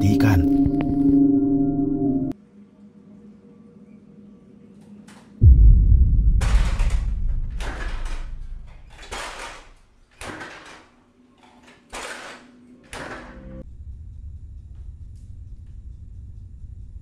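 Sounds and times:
deep low boom: 0:05.4 - 0:09.8.

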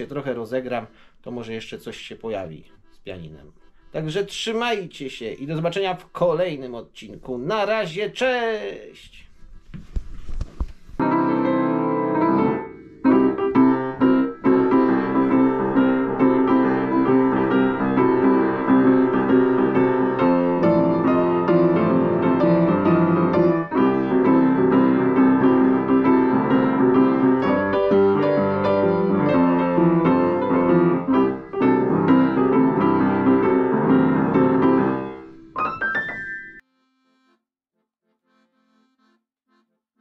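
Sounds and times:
upright piano playing: 0:11.0 - 0:36.7.

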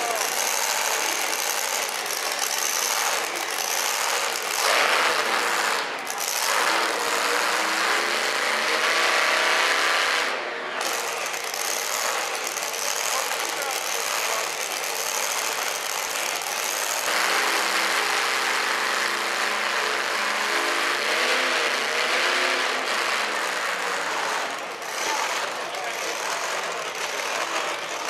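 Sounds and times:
truck engine running rough: 0:00.0 - 0:28.0.

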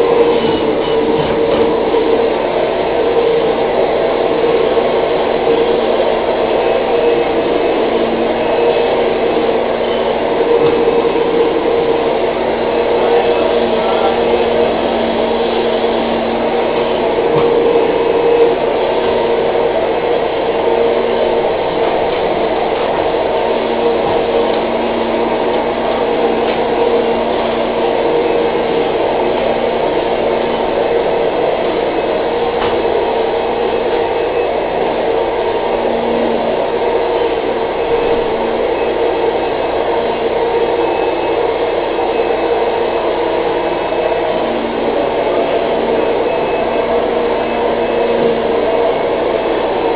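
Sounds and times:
vacuum cleaner running: 0:00.0 - 0:49.9.

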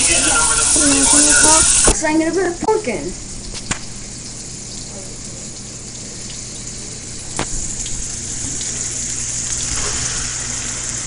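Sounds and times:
onions frying in hot oil: 0:00.0 - 0:11.0.

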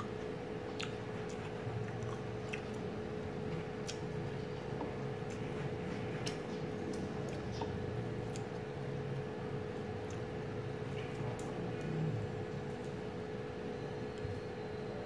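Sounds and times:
chewing: 0:00.0 - 0:08.7
low background hum: 0:00.0 - 0:15.0.

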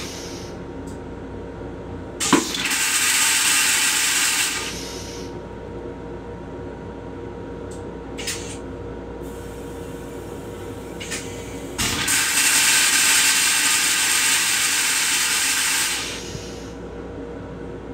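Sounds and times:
short hisses: 0:00.0 - 0:00.5, 0:04.6 - 0:05.3, 0:15.8 - 0:16.8
toilet flushing with rushing hiss: 0:02.2 - 0:05.3, 0:09.2 - 0:16.8.

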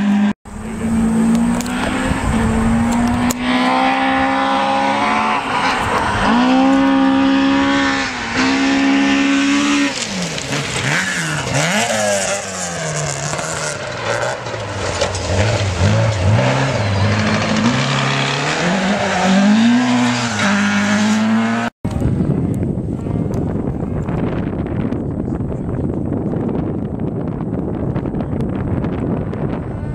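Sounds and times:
rally car engine revving: 0:00.0 - 0:21.7
wind noise on microphone: 0:00.5 - 0:10.2, 0:21.8 - 0:29.9.

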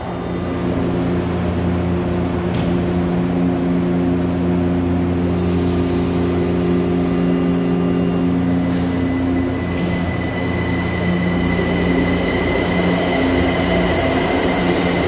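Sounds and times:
train equipment humming: 0:00.0 - 0:15.0
compressed air hissing: 0:05.3 - 0:06.7.

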